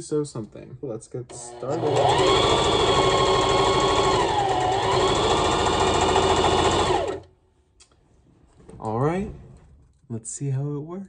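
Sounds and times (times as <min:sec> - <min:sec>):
sewing machine running: 0:01.3 - 0:07.3.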